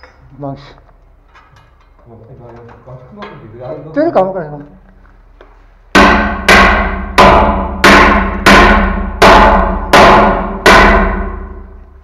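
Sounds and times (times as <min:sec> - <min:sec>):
heavy blows on metal clanging: 0:05.9 - 0:11.8.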